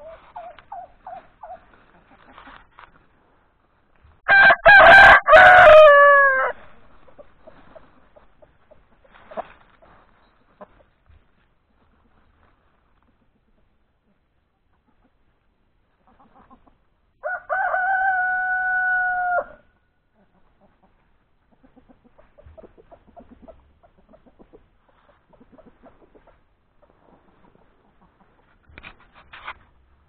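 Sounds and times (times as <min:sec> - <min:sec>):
chickens clucking: 0:00.0 - 0:03.2, 0:05.9 - 0:17.2, 0:20.0 - 0:29.9
rooster crowing: 0:04.3 - 0:06.6, 0:17.2 - 0:19.7.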